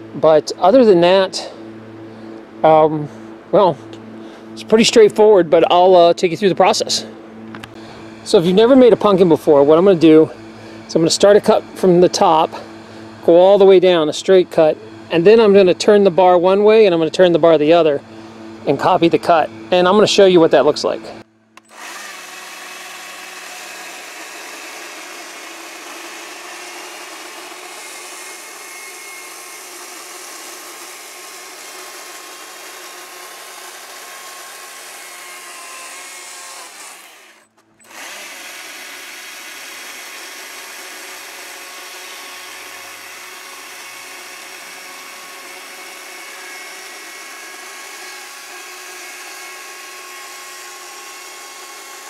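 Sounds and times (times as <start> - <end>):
chainsaw cutting wood: 21.6 - 52.0.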